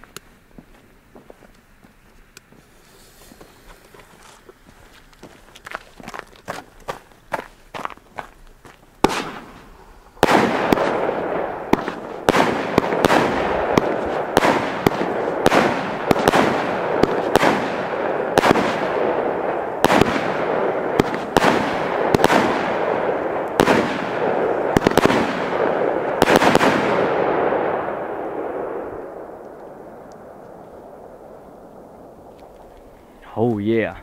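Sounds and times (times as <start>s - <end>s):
fireworks rushing hiss: 2.6s - 4.3s, 9.0s - 22.5s
fireworks sharp shots: 9.0s - 32.9s.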